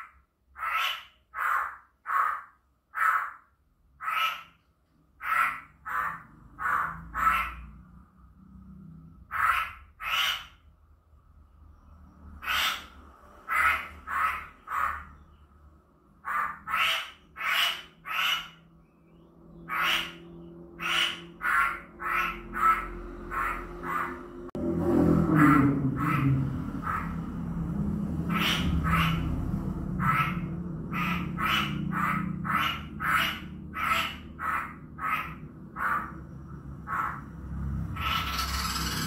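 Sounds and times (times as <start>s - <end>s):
bird giving harsh calls: 0.0s - 4.6s, 9.3s - 10.6s, 12.4s - 15.3s, 16.2s - 24.2s, 28.3s - 29.4s, 30.0s - 36.2s, 37.9s - 39.0s.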